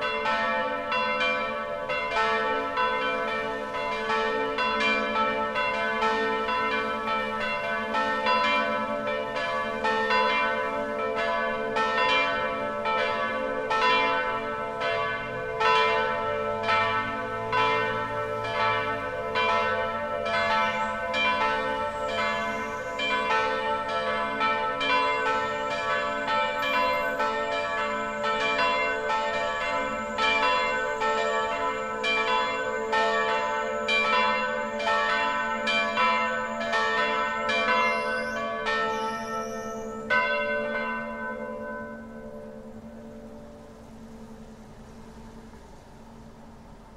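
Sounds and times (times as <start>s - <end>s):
church bells ringing: 0.0s - 44.5s.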